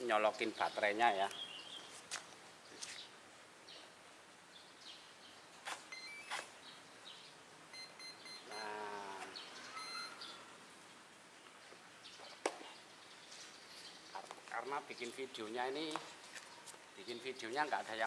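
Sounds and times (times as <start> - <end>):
high electronic beeps: 5.9 - 6.4, 7.7 - 8.8, 9.8 - 10.2
wavering animal call: 8.3 - 10.4.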